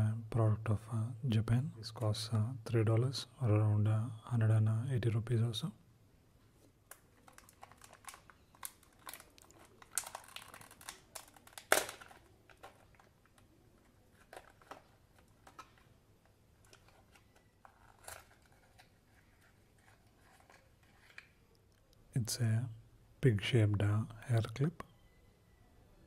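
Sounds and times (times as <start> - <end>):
plastic blister pack crinkling: 6.6 - 21.9.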